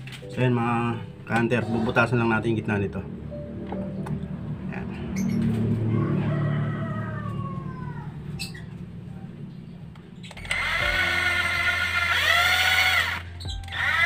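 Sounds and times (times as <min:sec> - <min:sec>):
cordless drill whining: 0:10.4 - 0:14.0.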